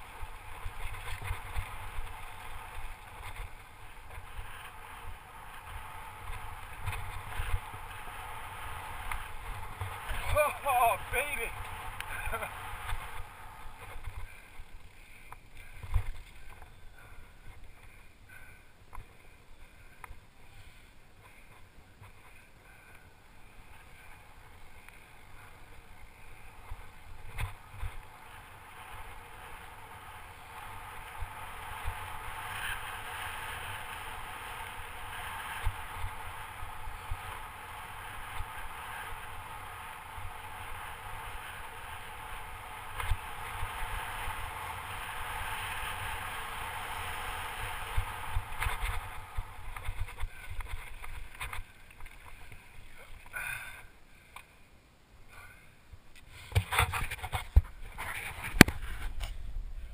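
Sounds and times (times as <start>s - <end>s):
bike tyres and frame rattling: 0.0s - 54.6s, 56.2s - 59.9s.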